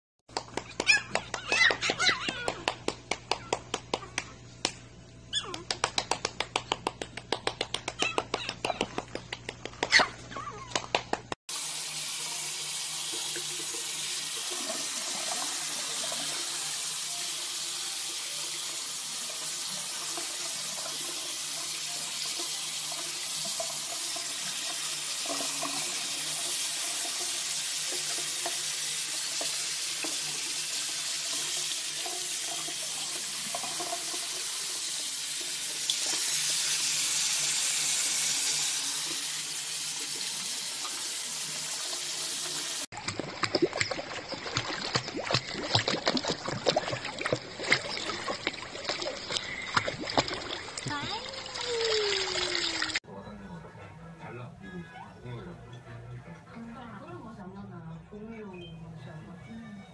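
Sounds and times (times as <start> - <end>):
running water: 11.5 - 53.0.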